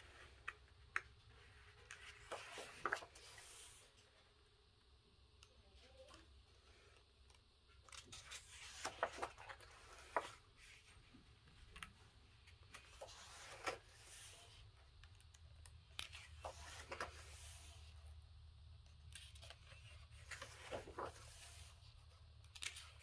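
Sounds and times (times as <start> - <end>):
paper pages rustling: 0.0 - 4.0, 7.8 - 14.6, 15.9 - 18.0, 19.0 - 23.0.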